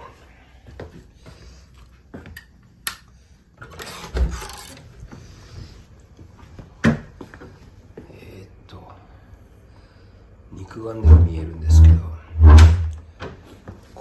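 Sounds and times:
sharp loud knock: 12.4s - 12.9s.

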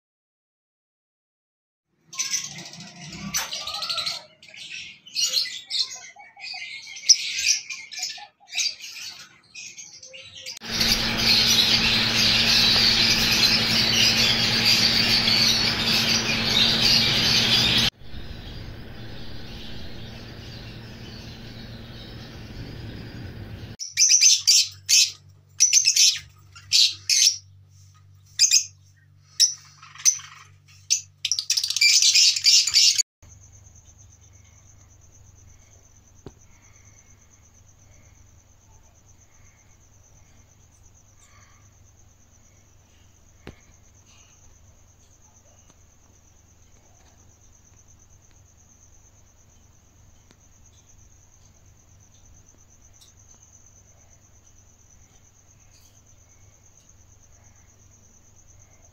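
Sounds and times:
parrots chirping and squawking: 2.1s - 23.0s, 29.4s - 33.0s.

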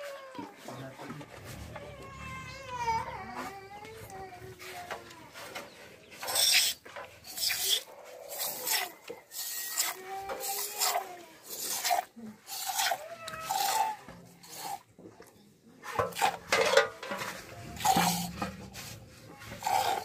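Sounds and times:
milk squirting into steel cup: 6.2s - 15.4s, 16.0s - 18.9s, 19.5s - 20.0s.

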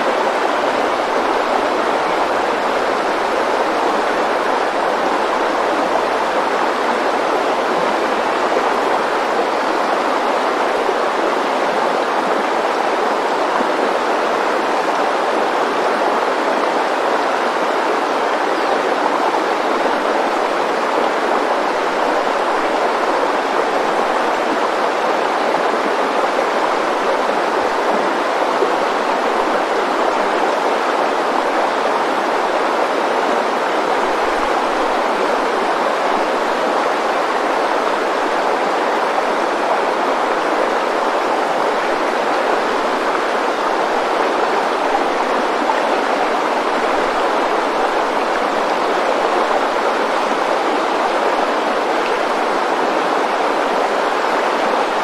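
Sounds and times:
river water rushing over rapids: 0.0s - 55.0s.

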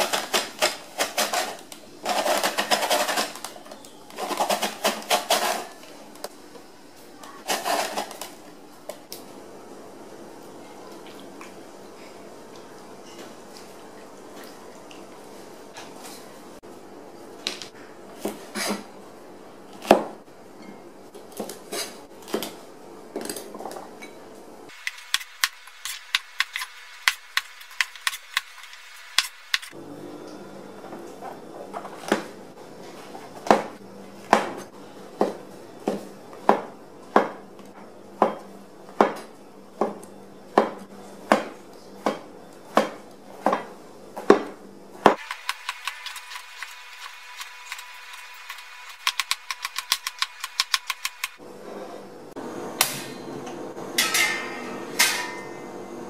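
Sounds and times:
cleaver on plastic cutting board: 0.0s - 3.5s.

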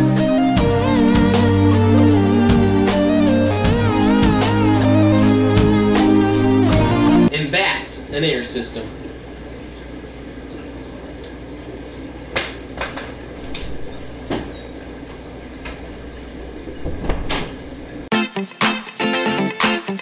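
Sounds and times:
guitar music: 0.0s - 7.3s, 18.1s - 20.0s
low room hum: 7.3s - 18.1s.

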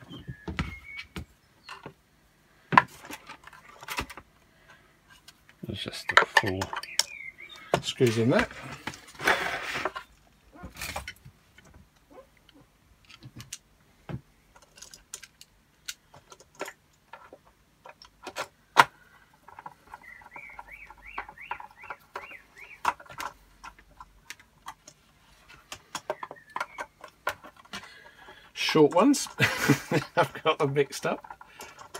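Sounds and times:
screw squeaking: 25.4s - 29.4s.

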